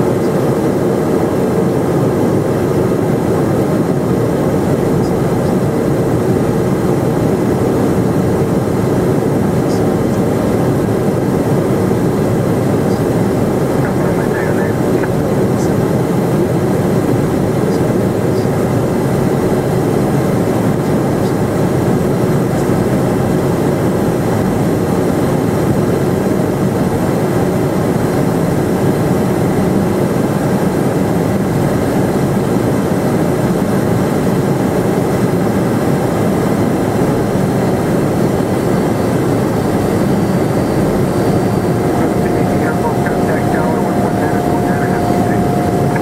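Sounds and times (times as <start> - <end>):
jet engine hum: 0.0 - 46.0
airflow rush: 38.2 - 46.0
faint steady tone: 38.7 - 46.0.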